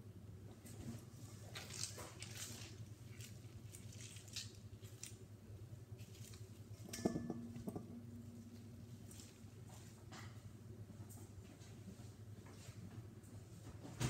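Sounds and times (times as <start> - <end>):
slime squelching: 1.1 - 7.0.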